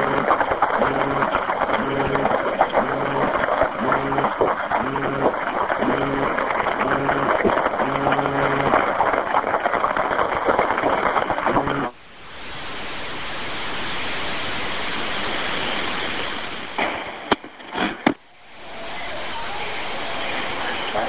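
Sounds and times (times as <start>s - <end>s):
telephone line crackling: 0.0s - 12.1s
steady hiss: 11.9s - 17.3s, 18.2s - 21.0s.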